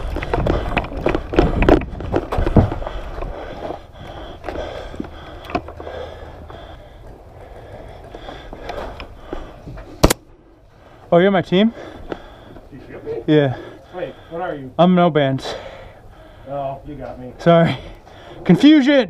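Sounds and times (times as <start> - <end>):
camera handling rumble: 0.0 - 5.9.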